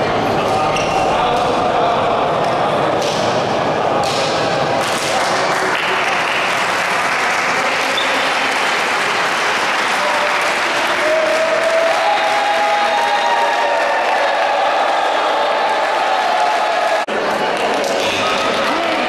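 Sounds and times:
small crowd applauding: 0:04.8 - 0:19.0.

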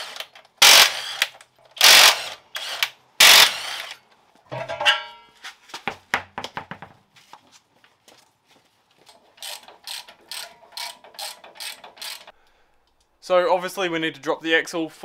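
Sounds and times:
ratchet wrench clicking: 0:09.4 - 0:12.4.

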